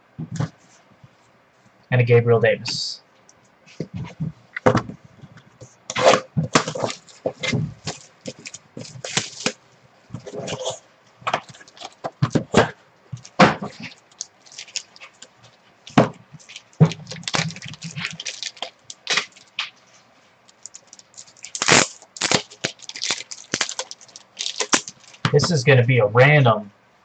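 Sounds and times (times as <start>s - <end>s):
plastic wrapper crinkling: 6.5s - 9.6s, 11.4s - 12.1s, 13.2s - 25.4s.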